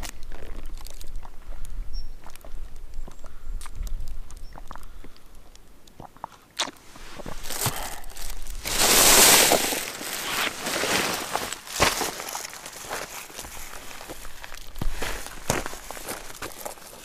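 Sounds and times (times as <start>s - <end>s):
plastic bag crinkling: 7.2s - 17.0s.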